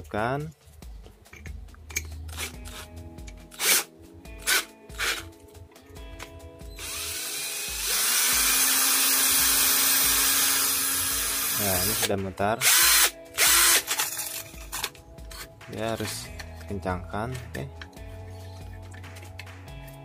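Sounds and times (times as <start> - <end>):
drill motor spinning cutting disc: 6.8 - 13.9
drill chuck clicking: 6.8 - 14.3.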